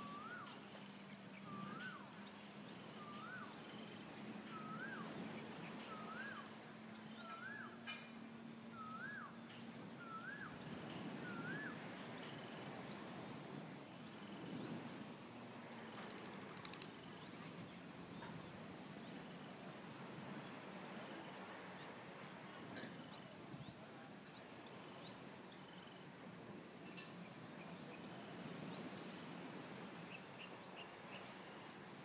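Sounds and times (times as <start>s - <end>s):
bird whistled call: 0.0s - 0.5s, 1.4s - 2.1s, 2.9s - 3.6s, 4.5s - 5.1s, 5.9s - 6.5s, 7.2s - 7.8s, 8.7s - 9.4s, 10.0s - 10.6s, 11.2s - 11.8s
birds chirping: 0.2s - 13.1s.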